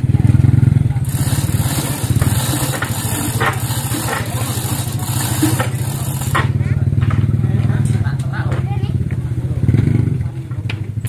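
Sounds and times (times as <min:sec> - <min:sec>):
engine idling: 0:00.0 - 0:11.0.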